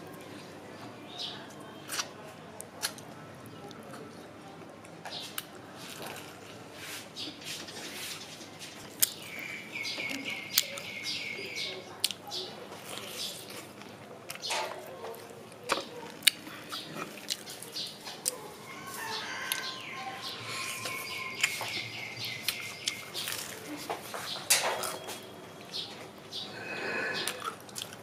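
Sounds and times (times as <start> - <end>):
crunching and chewing fried chicken: 1.4 - 7.0, 8.6 - 25.3, 27.0 - 28.0
bird singing: 9.1 - 12.5, 18.7 - 23.5.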